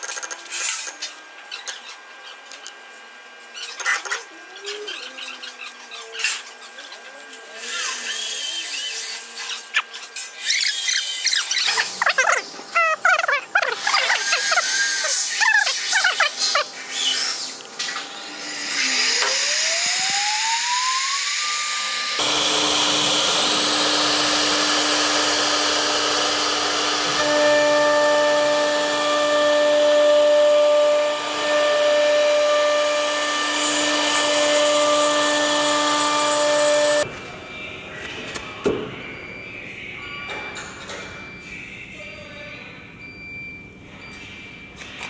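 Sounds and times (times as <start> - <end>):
router bit carving wood: 13.4 - 16.3, 18.2 - 37.0
cnc router spindle whine: 13.8 - 37.1.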